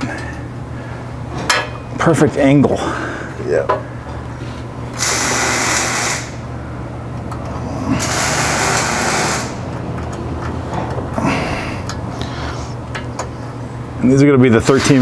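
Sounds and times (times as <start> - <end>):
steady low hum: 0.0 - 15.0
hissing bursts: 8.0 - 9.6.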